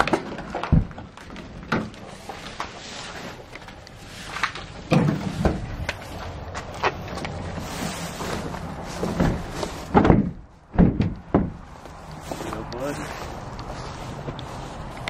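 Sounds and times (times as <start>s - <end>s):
footsteps through dry grass: 11.6s - 15.0s.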